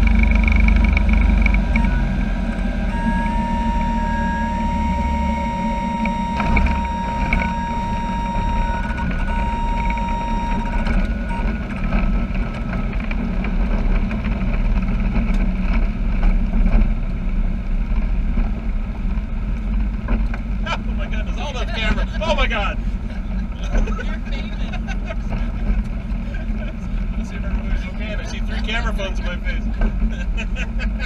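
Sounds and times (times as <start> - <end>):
steady high tone: 0.0 - 13.0
airplane engine droning: 0.0 - 31.0.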